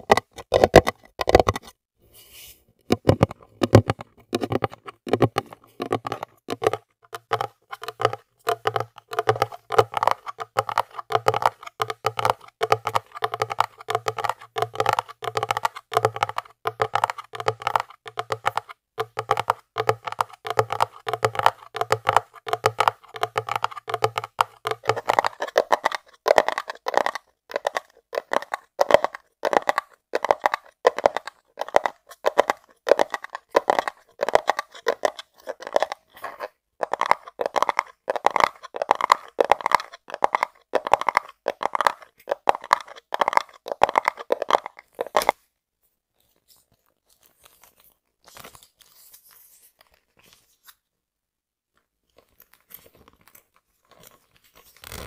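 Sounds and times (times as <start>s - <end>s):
fingernails tapping hard case: 2.9s - 29.0s.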